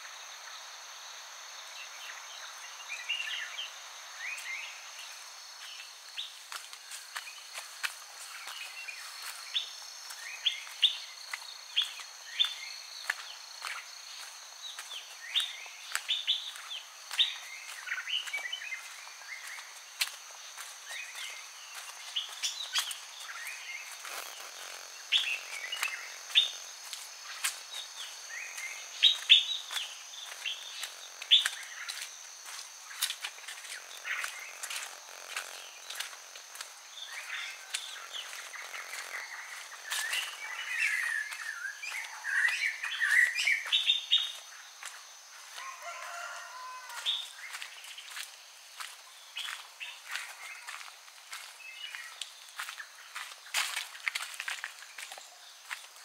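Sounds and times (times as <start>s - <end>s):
crickets droning: 0.0s - 56.0s
footsteps clicking: 5.6s - 42.7s
birds chirping and calling: 14.7s - 46.2s.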